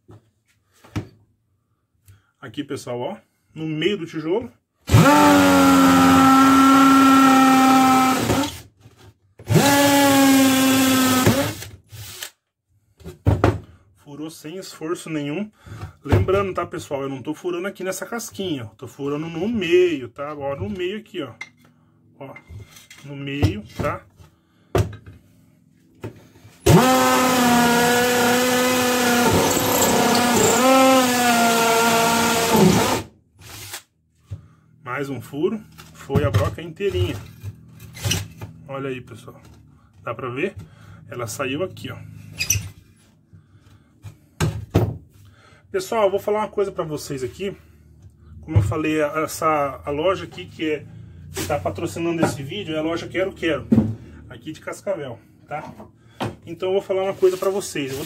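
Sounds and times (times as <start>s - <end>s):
hammer drill boring into brick: 4.9s - 8.6s, 9.5s - 12.4s, 26.6s - 33.8s.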